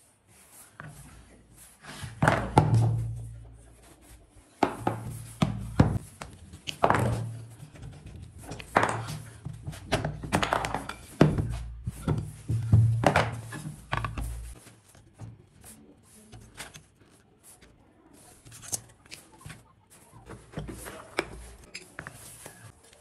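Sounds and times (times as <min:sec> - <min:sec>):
wooden pieces thunking and tapping: 0:04.6 - 0:15.5.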